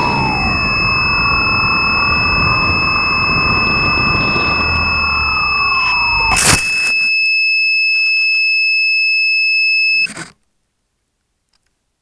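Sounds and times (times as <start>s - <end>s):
motor whine: 0.0s - 7.1s
high-pitched electronic tone: 0.0s - 7.2s.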